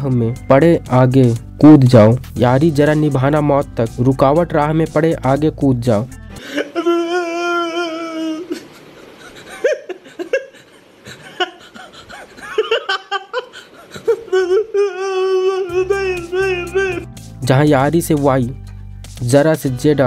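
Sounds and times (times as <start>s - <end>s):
man sobbing and wailing: 6.4s - 17.2s.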